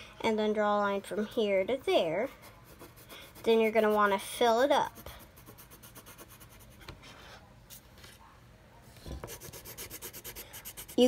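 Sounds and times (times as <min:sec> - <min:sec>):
pencil scratching on paper: 0:02.2 - 0:04.2, 0:04.8 - 0:06.9, 0:09.2 - 0:11.0.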